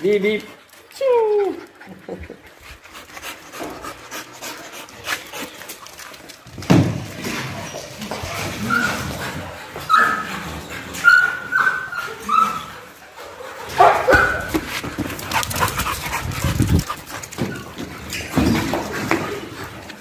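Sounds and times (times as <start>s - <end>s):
dogs yipping and barking: 8.2s - 18.5s.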